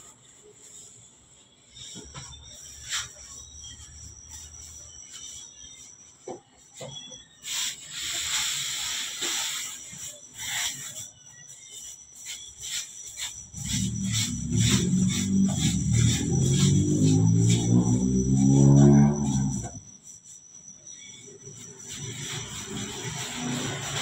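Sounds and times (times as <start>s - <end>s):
hiss: 7.4s - 19.8s, 21.4s - 24.0s.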